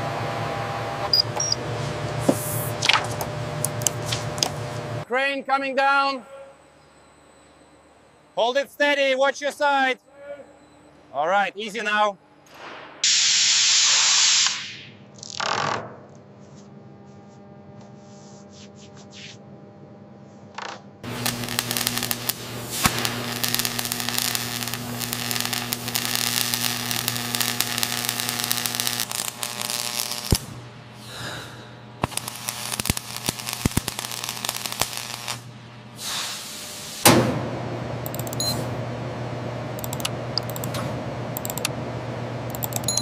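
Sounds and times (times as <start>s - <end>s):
machine hum: 0.0s - 5.1s, 21.0s - 43.0s
electrical hum: 0.0s - 12.5s, 14.8s - 43.0s
welding arc crackling: 13.0s - 15.6s, 20.6s - 37.1s.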